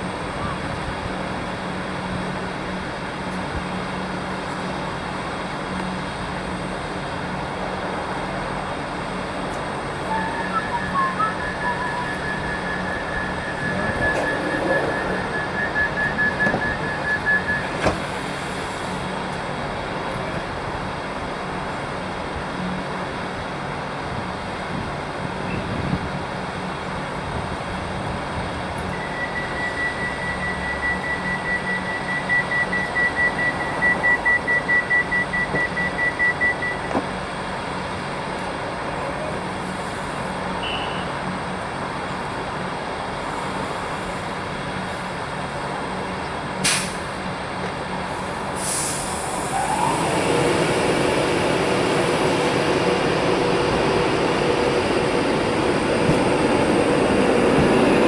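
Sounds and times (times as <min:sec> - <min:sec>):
train pulling away: 0:00.0 - 0:40.6, 0:41.2 - 0:58.0
train door warning beeps: 0:10.1 - 0:18.0, 0:28.9 - 0:37.1.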